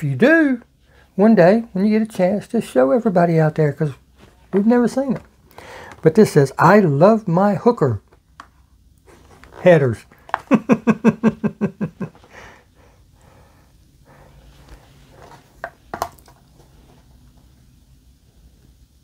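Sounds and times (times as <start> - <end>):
man laughing: 10.4 - 12.3.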